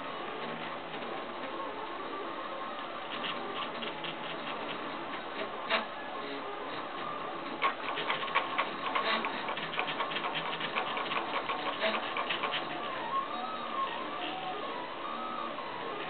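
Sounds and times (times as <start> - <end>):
three d printer stepper motor whine: 0.0 - 16.0
rapid irregular ticks: 3.0 - 5.8, 7.4 - 13.1.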